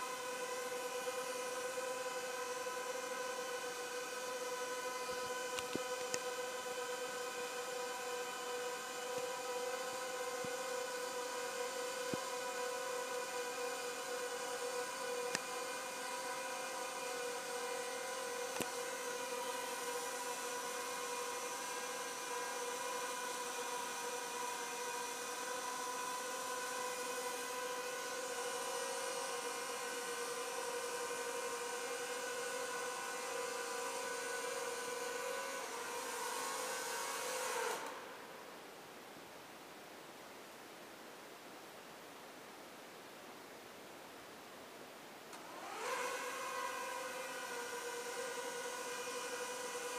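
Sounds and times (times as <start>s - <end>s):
quadcopter propellers whining: 0.0s - 38.1s, 45.4s - 49.9s
faint hiss: 37.2s - 45.5s.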